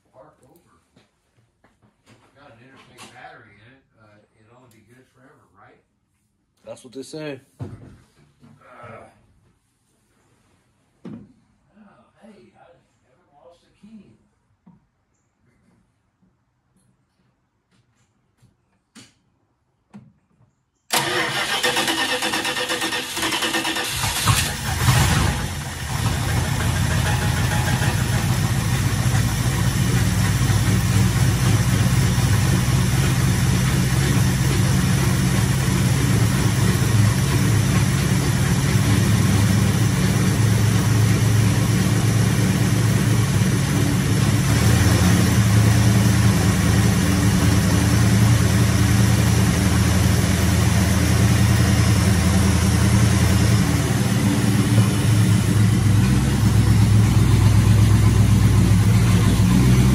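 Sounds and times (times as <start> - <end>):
car engine idling: 20.9 - 59.9.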